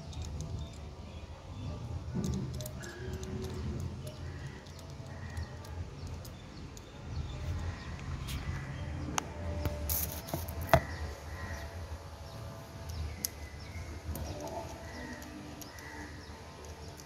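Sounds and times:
metallic clicks of timing chain: 0.0s - 1.2s, 2.2s - 7.0s.

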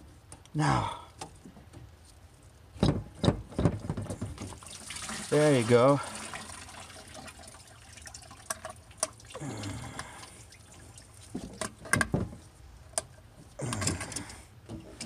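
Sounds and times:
coolant trickling into bucket: 4.3s - 11.9s.

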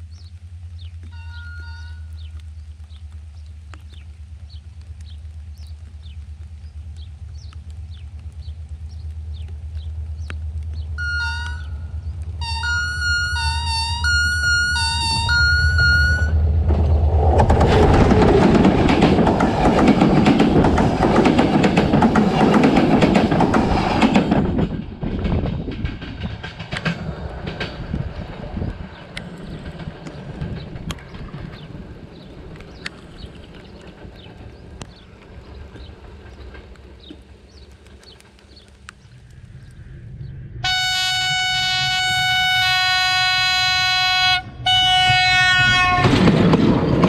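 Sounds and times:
diesel locomotive engine rumble: 0.0s - 47.0s
locomotive horn: 1.1s - 2.2s, 11.0s - 16.4s, 40.6s - 46.3s.

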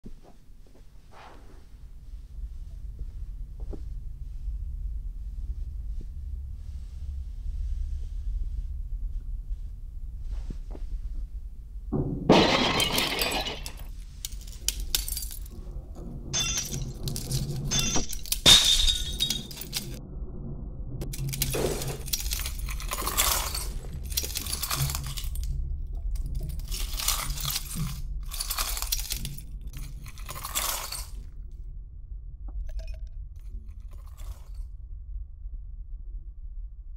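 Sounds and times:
steady low rumble: 0.1s - 36.9s
ice shattering and clinking: 12.3s - 15.5s, 16.4s - 20.0s, 21.2s - 25.5s, 26.4s - 31.2s.

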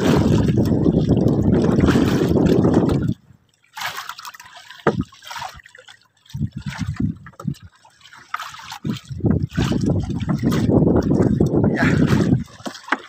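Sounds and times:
wind gusts on microphone: 0.0s - 3.2s, 6.3s - 7.7s, 8.8s - 12.6s
sea water splashing and trickling: 0.0s - 13.0s
sharp knock on boat: 4.8s - 5.0s.

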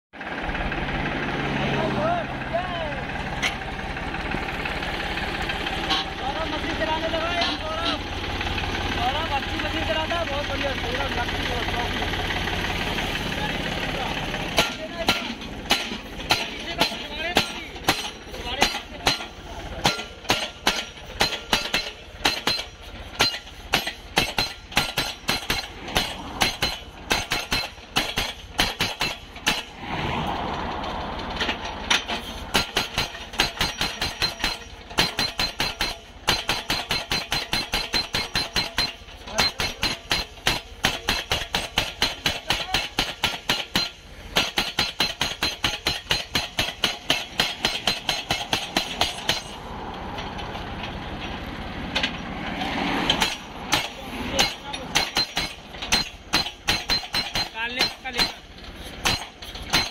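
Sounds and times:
hammer striking steel post: 14.5s - 29.8s, 31.4s - 50.3s, 53.0s - 59.9s.

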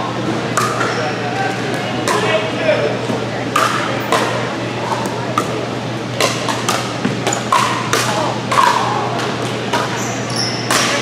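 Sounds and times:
ball bouncing on court: 0.5s - 1.0s, 3.0s - 11.0s
paddles hitting plastic ball: 3.0s - 10.0s, 10.7s - 11.0s.

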